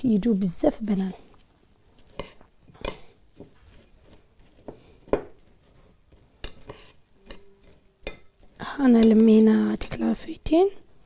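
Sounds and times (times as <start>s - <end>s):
metal spoon clinking against bowls: 6.4s - 8.4s.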